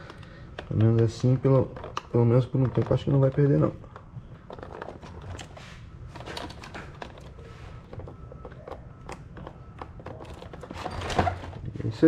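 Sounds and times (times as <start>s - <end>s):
plastic clicks and rattles: 0.0s - 5.5s.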